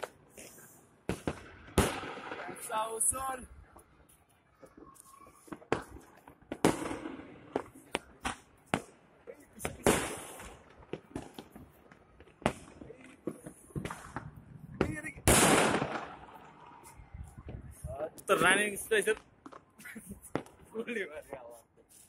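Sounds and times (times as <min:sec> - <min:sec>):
fireworks and firecrackers banging: 0:00.0 - 0:22.0.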